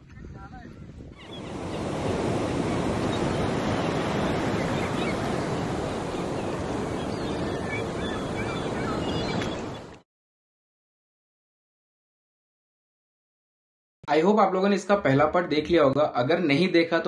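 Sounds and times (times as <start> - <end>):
wind: 0.0 - 10.0
sea surf rushing: 1.2 - 10.0.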